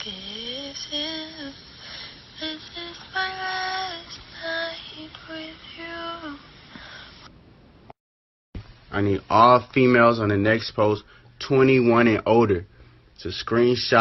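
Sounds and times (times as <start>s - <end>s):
girl singing unaccompanied: 0.0s - 6.7s.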